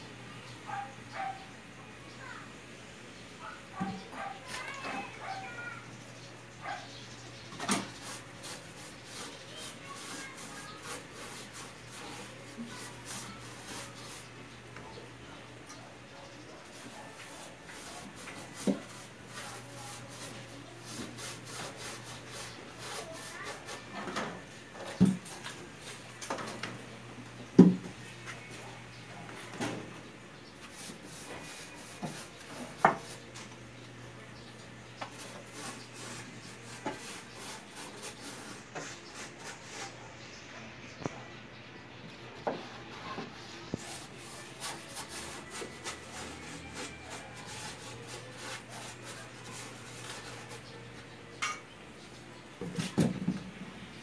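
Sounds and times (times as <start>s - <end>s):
rubbing strokes on wood: 7.6s - 14.4s, 16.6s - 24.0s, 30.6s - 33.2s, 35.0s - 40.0s, 42.5s - 50.8s
dull knocks on wood: 27.6s - 27.9s.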